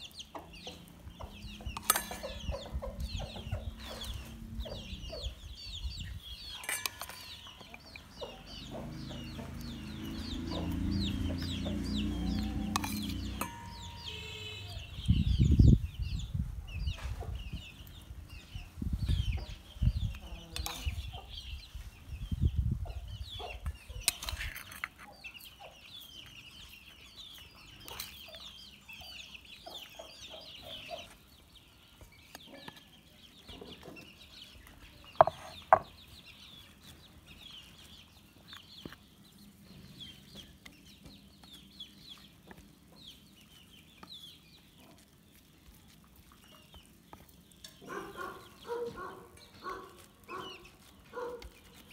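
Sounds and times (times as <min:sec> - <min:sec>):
chickens clucking: 0:00.0 - 0:51.9
spoon scraping steel bowl: 0:01.7 - 0:02.5, 0:06.5 - 0:07.9, 0:12.2 - 0:14.7, 0:24.0 - 0:25.1.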